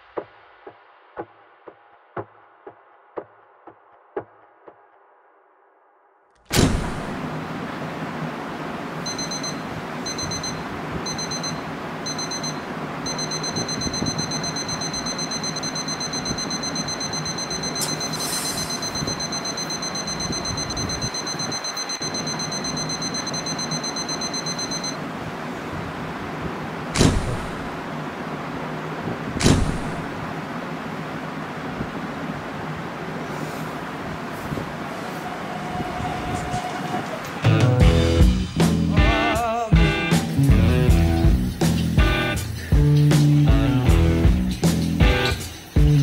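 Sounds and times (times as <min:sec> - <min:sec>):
sharp loud hits: 0:06.5 - 0:07.2, 0:27.0 - 0:27.8, 0:29.4 - 0:30.2
background hiss: 0:06.5 - 0:46.0
phone alarm beeping: 0:09.0 - 0:25.0.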